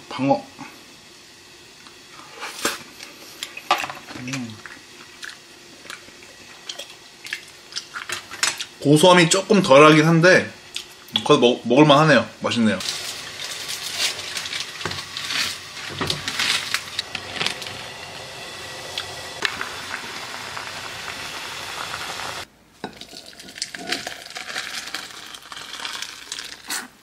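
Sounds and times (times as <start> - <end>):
noodles boiling with bubbling hiss: 0.0 - 27.0
noodles poured into glass bowl: 23.0 - 26.9.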